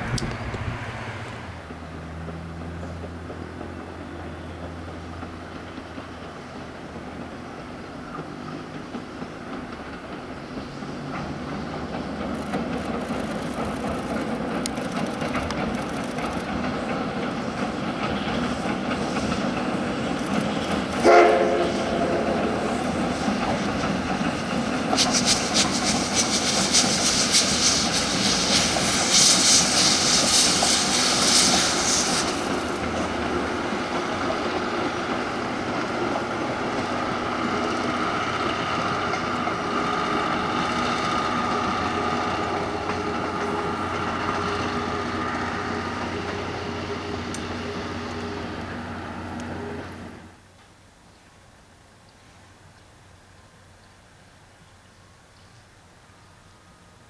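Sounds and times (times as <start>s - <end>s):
train running clatter and hiss: 0.0s - 50.8s
steam locomotive whistle: 21.0s - 22.7s.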